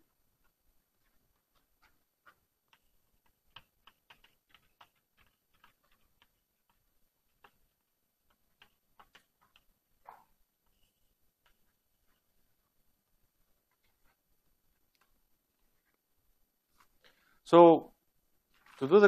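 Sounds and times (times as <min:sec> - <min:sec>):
chalk tapping and scratching on blackboard: 0:00.4 - 0:12.4.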